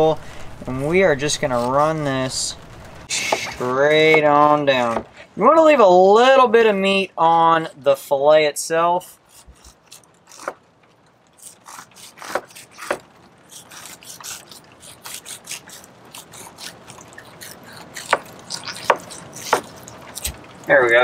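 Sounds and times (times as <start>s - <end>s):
knife scraping fish skin: 9.3s - 10.6s, 11.4s - 20.4s.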